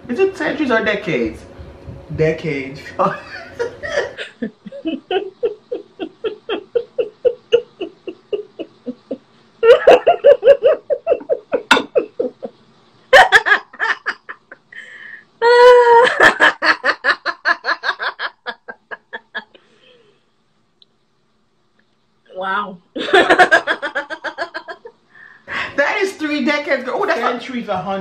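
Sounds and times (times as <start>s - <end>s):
person laughing: 3.0s - 19.6s.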